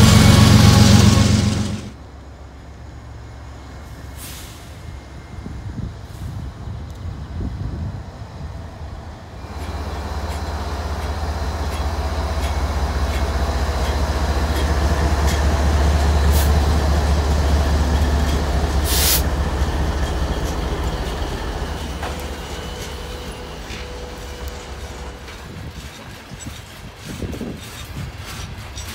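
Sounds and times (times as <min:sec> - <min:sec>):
diesel locomotive engine drone: 0:00.0 - 0:28.9
brief hiss: 0:04.1 - 0:04.9.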